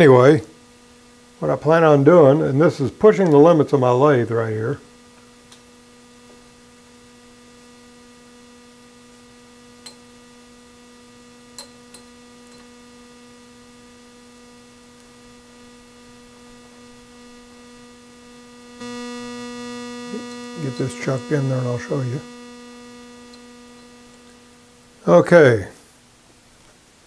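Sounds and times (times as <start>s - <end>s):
electrical mains hum: 0.0s - 27.0s.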